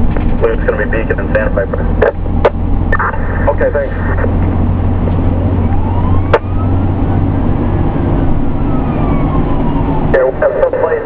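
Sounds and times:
fire engine diesel drone: 0:00.0 - 0:11.0
road noise: 0:00.0 - 0:11.0
faint siren wail: 0:03.9 - 0:11.0.

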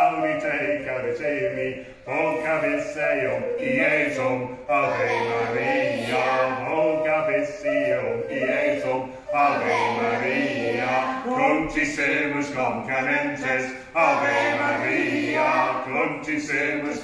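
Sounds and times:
recorder playing: 0:05.2 - 0:11.0.

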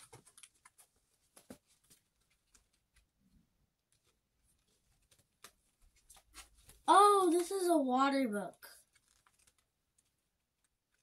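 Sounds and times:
packaging ticks and rustles: 0:00.0 - 0:03.1, 0:08.7 - 0:11.0.

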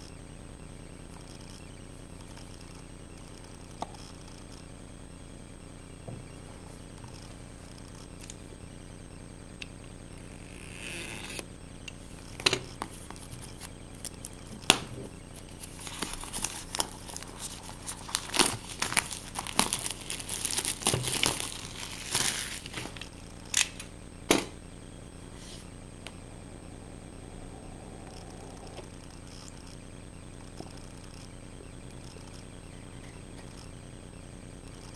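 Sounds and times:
plastic wrap crinkling: 0:15.5 - 0:23.1.

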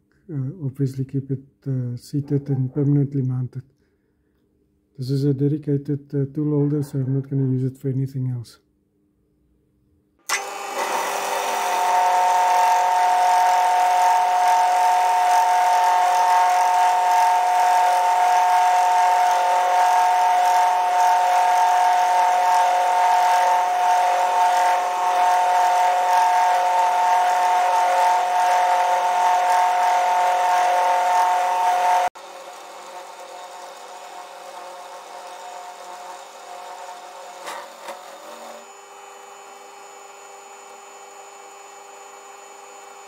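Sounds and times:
end mill cutting metal: 0:10.3 - 0:43.0
milling machine whine: 0:10.3 - 0:43.0.

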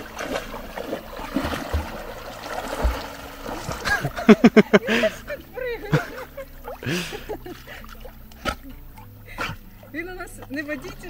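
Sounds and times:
low thumps: 0:00.0 - 0:10.5
water splashing and sloshing: 0:00.0 - 0:11.0.

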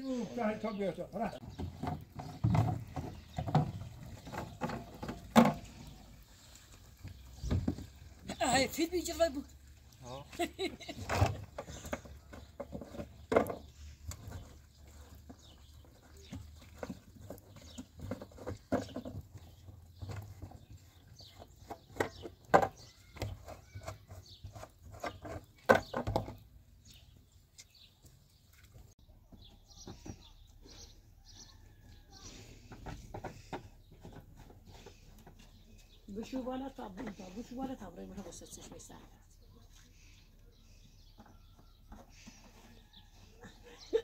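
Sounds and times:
plastic jerrycans knocking: 0:01.4 - 0:06.1, 0:10.7 - 0:24.1.

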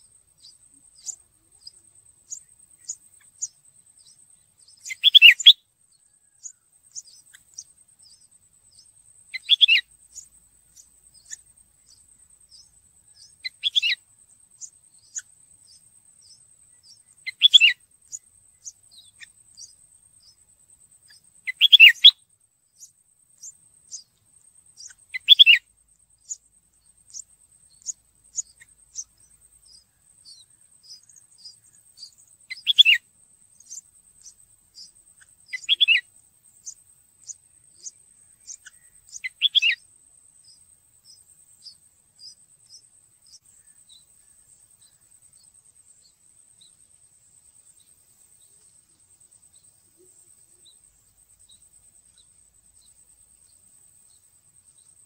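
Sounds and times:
faint bird chirps: 0:00.0 - 0:55.0
birds calling sharply: 0:00.4 - 0:05.6, 0:21.5 - 0:22.2, 0:33.6 - 0:36.0.

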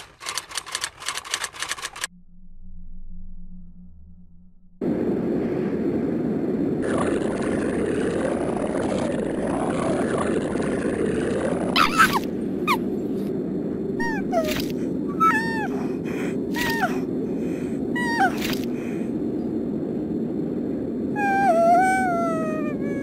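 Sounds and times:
low rumbling drone: 0:02.0 - 0:23.0
high animal-like cries: 0:11.8 - 0:12.8, 0:14.0 - 0:15.9, 0:18.0 - 0:18.6, 0:21.2 - 0:23.0.

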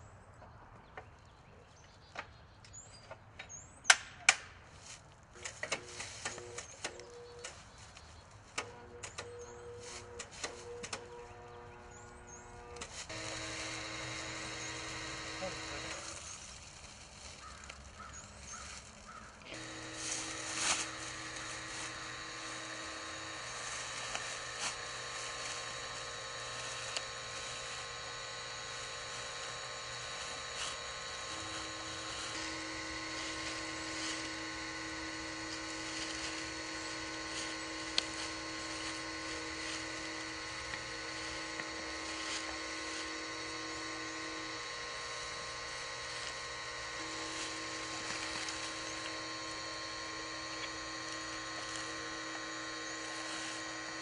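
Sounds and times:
small motor humming: 0:04.8 - 0:54.0.

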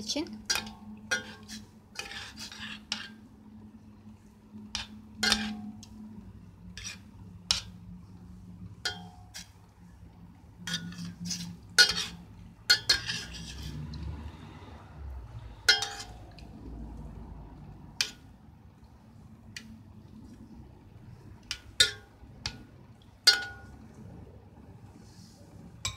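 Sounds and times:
low steady hum: 0:00.0 - 0:25.9
metal spoon clinking in pot: 0:00.4 - 0:03.2, 0:04.7 - 0:06.0, 0:08.8 - 0:09.6, 0:10.6 - 0:13.7, 0:15.6 - 0:16.5, 0:21.5 - 0:22.6, 0:23.3 - 0:23.8.

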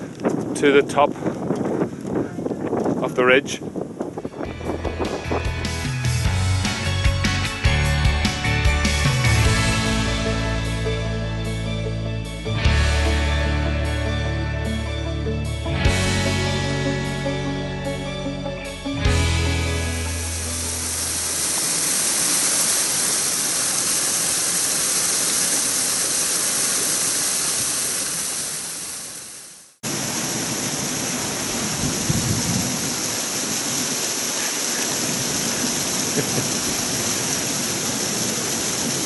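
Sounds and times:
waterfall rushing and splashing: 0:19.8 - 0:39.0.

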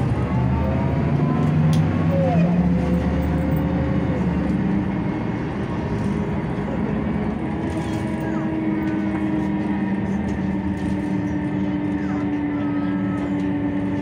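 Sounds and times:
bus diesel engine running: 0:00.0 - 0:14.0
road and body noise: 0:00.0 - 0:14.0.

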